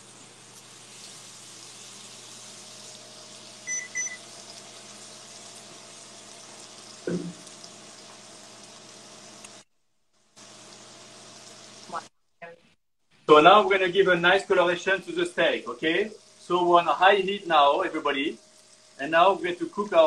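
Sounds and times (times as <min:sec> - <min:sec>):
steaks sizzling in frying pan: 0:00.0 - 0:09.6, 0:10.2 - 0:12.1, 0:14.4 - 0:20.0
short electronic beeps: 0:03.7 - 0:04.2.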